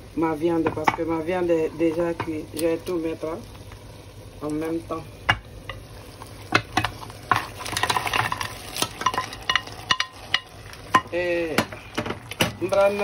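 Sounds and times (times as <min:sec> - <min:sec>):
food sizzling in hot oil: 0:00.0 - 0:13.0
utensil knocking and scraping pot: 0:06.5 - 0:13.0.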